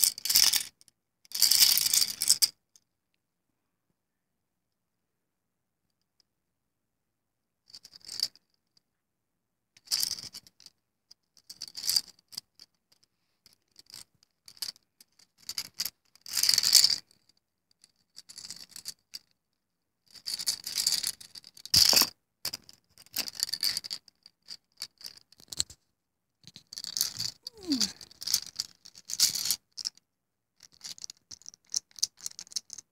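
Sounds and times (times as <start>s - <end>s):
plastic toy keys rattling: 26.8s - 28.4s.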